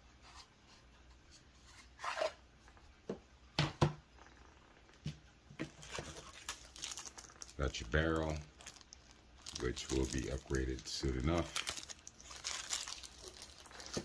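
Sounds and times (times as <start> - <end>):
plastic wrap rustling: 5.6 - 14.0.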